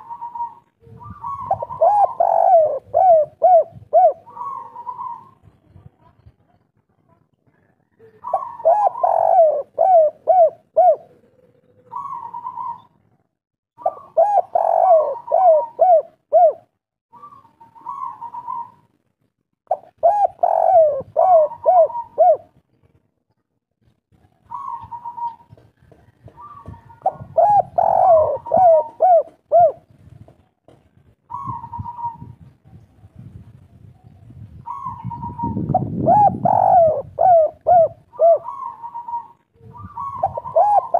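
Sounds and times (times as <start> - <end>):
dove cooing: 0.0 - 5.6, 8.0 - 13.0, 13.8 - 18.9, 19.7 - 22.6, 24.4 - 29.9, 31.3 - 32.5, 34.6 - 40.9.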